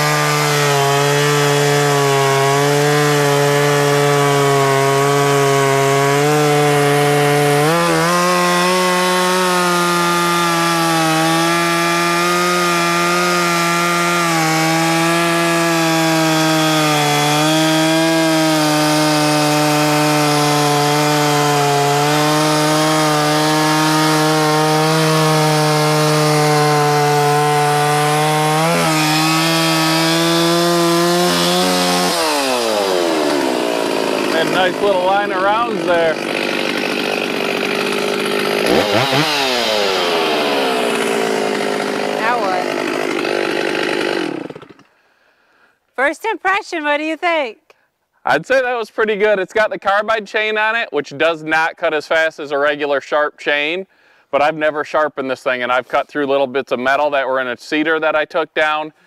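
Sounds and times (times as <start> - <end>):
chainsaw cutting log: 0.0 - 45.0.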